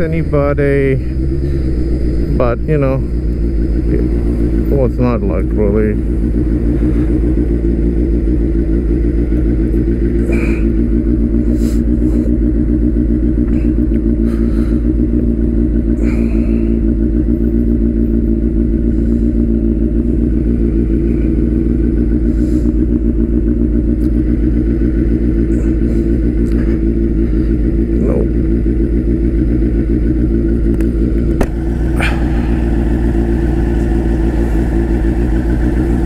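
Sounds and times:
motorcycle engine idling loudly: 0:00.0 - 0:36.0.

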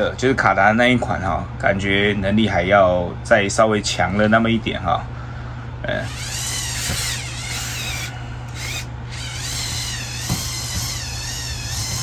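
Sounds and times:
steady low hum: 0:00.0 - 0:12.0
toy electric motors whining: 0:05.9 - 0:12.0.

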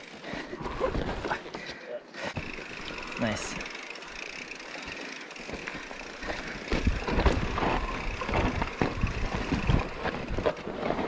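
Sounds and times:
mountain bike tyre and ground noise: 0:00.0 - 0:11.0
bike knocks and rattles: 0:02.3 - 0:03.0, 0:04.9 - 0:11.0.

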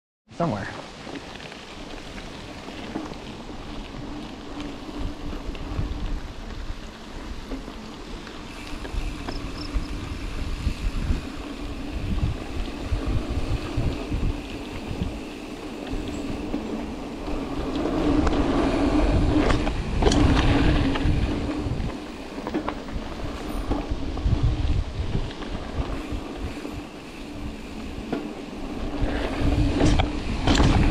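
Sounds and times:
bike tyres rumbling on dirt: 0:00.4 - 0:30.9
bike knocks and rattles: 0:29.1 - 0:30.9.

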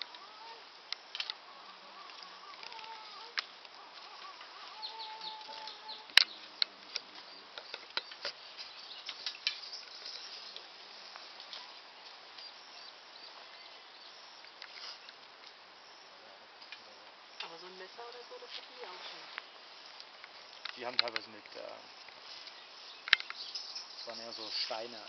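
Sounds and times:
high insect buzz: 0:00.0 - 0:06.4.

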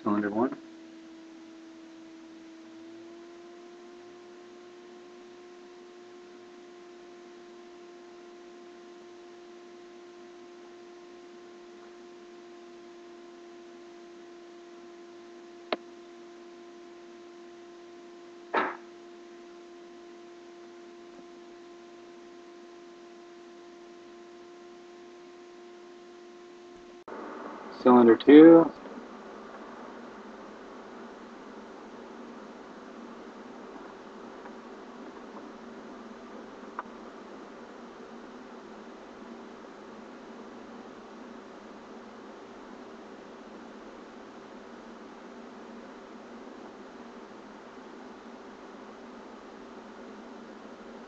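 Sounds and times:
electronic hum with hiss: 0:00.0 - 0:51.0.

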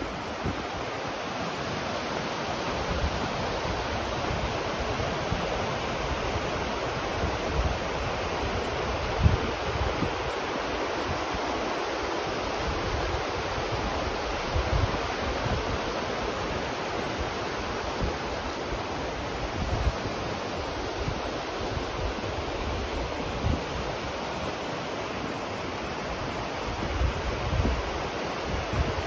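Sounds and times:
river rapids rushing over rocks: 0:00.0 - 0:29.0
wind buffeting microphone: 0:07.0 - 0:10.4, 0:26.7 - 0:29.0.

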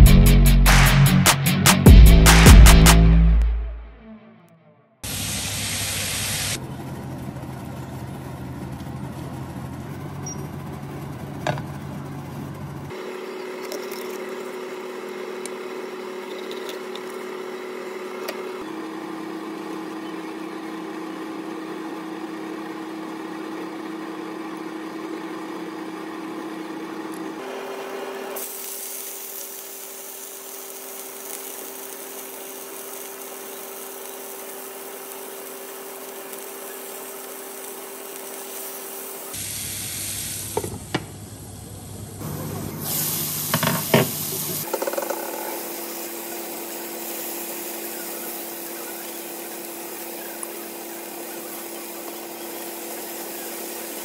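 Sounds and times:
vegetables sizzling in frying pan: 0:05.0 - 0:06.6, 0:28.4 - 0:40.9, 0:42.2 - 0:54.0
kitchen hum: 0:05.0 - 0:54.0
fish frying in oil: 0:28.4 - 0:40.6, 0:42.8 - 0:54.0.

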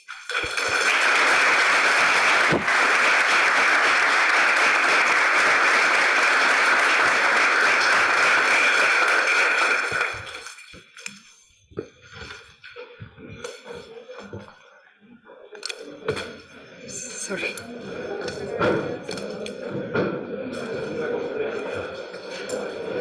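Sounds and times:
audience applauding: 0:00.0 - 0:10.8.

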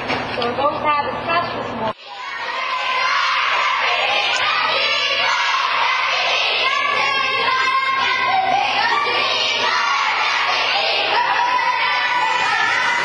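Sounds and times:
crowd cheering: 0:02.0 - 0:13.0
girls singing and shouting: 0:02.0 - 0:13.0.

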